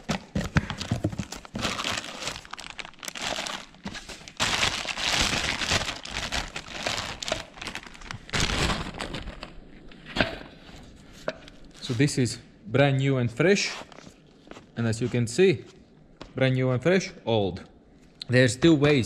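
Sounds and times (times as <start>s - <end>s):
plastic wrapping crinkling: 0.0s - 9.9s.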